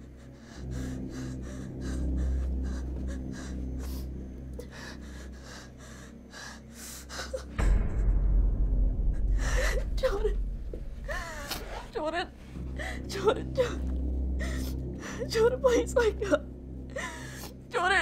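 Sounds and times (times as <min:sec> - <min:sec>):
woman panting and gasping: 0:00.0 - 0:08.4, 0:09.0 - 0:17.7
droning horror music: 0:00.0 - 0:18.0.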